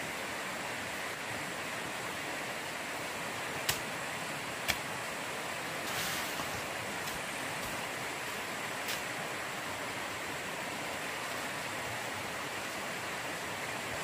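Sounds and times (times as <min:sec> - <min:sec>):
water rushing: 0:00.0 - 0:14.0.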